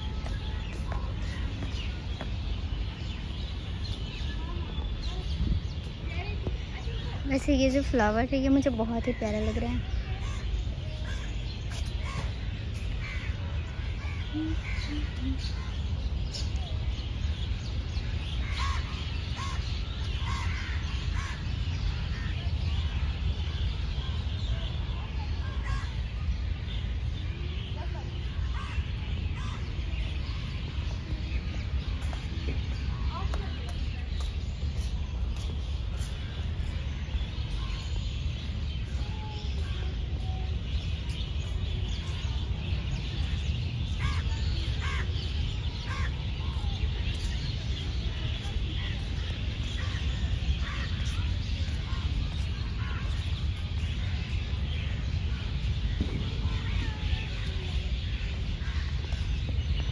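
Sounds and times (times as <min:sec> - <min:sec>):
bird calling: 0:13.0 - 0:15.9
low rumble on microphone: 0:28.0 - 0:59.9.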